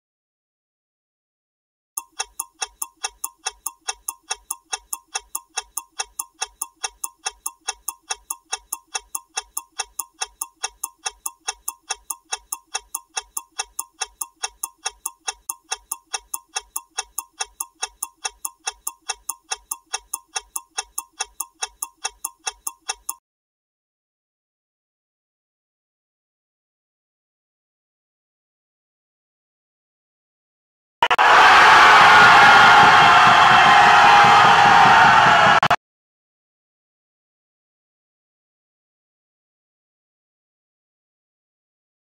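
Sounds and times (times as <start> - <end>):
mechanical ticking: 2.0 - 23.2.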